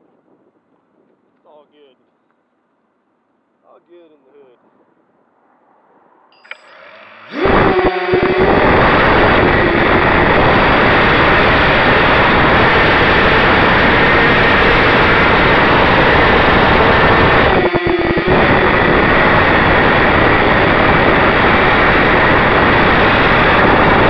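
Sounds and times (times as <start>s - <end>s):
quadcopter motors buzzing: 6.4s - 24.0s.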